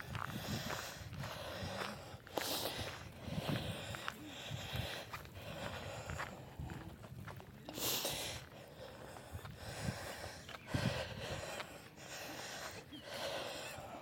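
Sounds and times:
person breathing: 0.0s - 6.7s, 7.7s - 14.0s
footsteps crunching on gravel: 0.0s - 7.7s.

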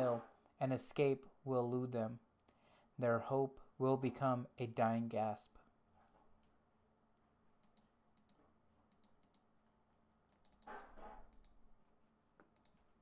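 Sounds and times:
mouse and keyboard clicks: 10.3s - 11.6s.

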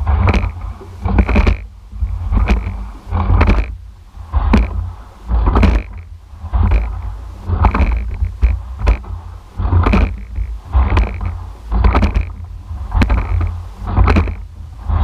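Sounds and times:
low rumble: 0.0s - 15.0s
oars clunking in oarlocks: 0.0s - 15.0s
rushing water: 0.0s - 15.0s.

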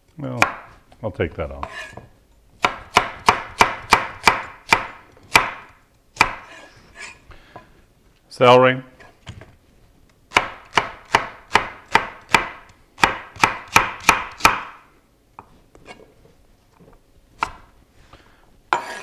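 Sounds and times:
knife chopping celery: 2.6s - 7.2s, 10.3s - 14.8s.

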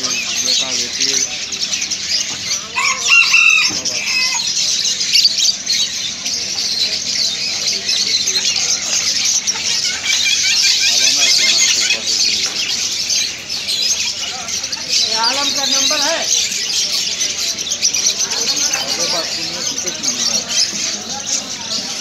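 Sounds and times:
parrots chirping and chattering: 0.0s - 22.0s
loud parrot call: 2.5s - 5.5s.

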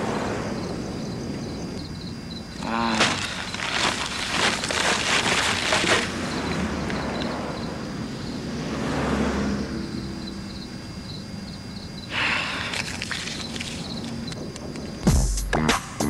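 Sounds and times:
plastic bag crinkling: 3.0s - 6.2s, 12.7s - 14.2s
passing vehicle rumble: 6.3s - 11.4s.

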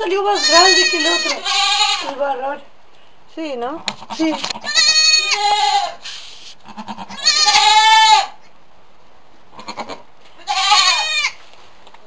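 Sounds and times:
goat kid bleating: 0.0s - 2.4s, 3.8s - 8.5s, 9.5s - 11.4s.

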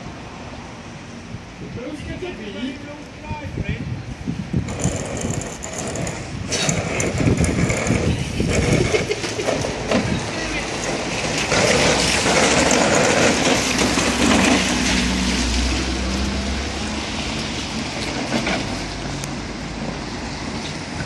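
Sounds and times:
small wheels rolling through water: 4.6s - 21.0s.

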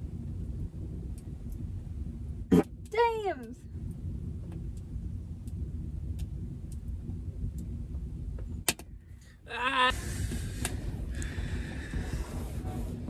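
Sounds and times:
campfire crackling: 0.0s - 13.0s
low steady rumble: 0.0s - 13.0s.

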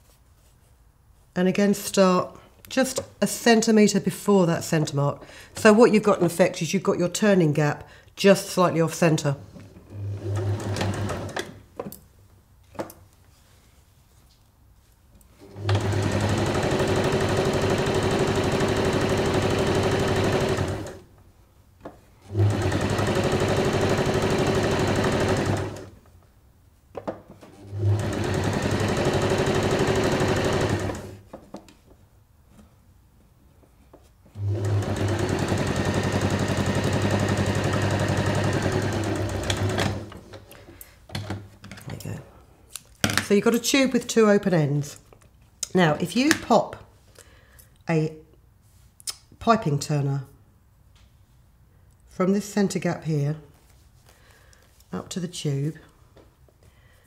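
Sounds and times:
sewing machine stitching fabric: 9.6s - 11.6s, 15.4s - 21.0s, 22.2s - 26.0s, 27.5s - 31.2s, 34.3s - 40.4s.

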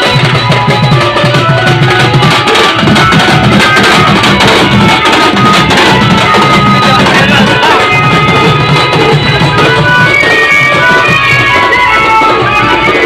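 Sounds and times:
drumming on barrel drums: 0.0s - 13.0s
music through horn loudspeakers: 0.0s - 13.0s.

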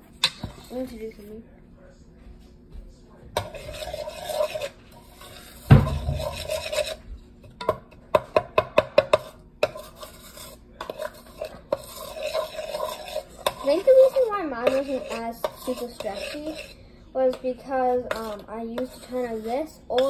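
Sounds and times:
spoon scraping plastic bowl: 3.4s - 20.0s
heavy thump: 5.7s - 6.3s.

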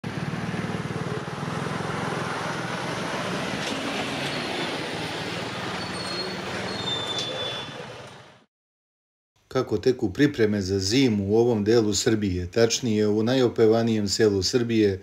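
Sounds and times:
truck diesel engine throbbing: 0.0s - 8.4s
street traffic: 0.0s - 8.5s
thin high squeals: 5.8s - 7.8s.

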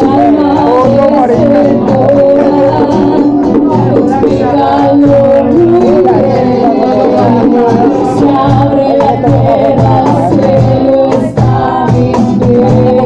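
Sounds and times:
steady low beat: 0.0s - 12.9s
acoustic guitar: 0.0s - 13.0s
person singing: 0.0s - 13.0s.

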